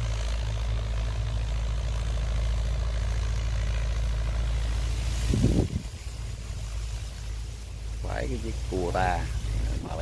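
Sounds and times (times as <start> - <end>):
tractor diesel engine droning: 0.0 - 10.0.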